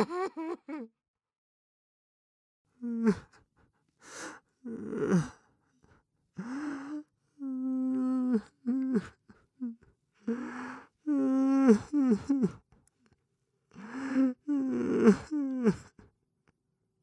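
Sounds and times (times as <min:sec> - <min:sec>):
person sobbing: 0:00.0 - 0:00.9, 0:07.5 - 0:12.6, 0:13.8 - 0:16.0
person whimpering: 0:02.8 - 0:03.4, 0:04.7 - 0:05.4, 0:06.4 - 0:12.6, 0:13.8 - 0:16.0.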